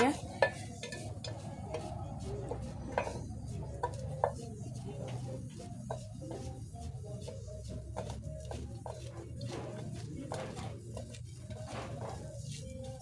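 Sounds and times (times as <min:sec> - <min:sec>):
knife cutting and tapping pot: 0:02.5 - 0:04.5.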